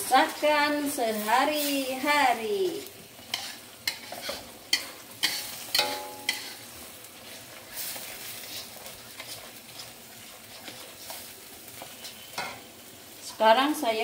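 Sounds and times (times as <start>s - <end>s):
soft sizzle: 0.0s - 14.0s
spatula scraping in wok: 0.1s - 12.7s.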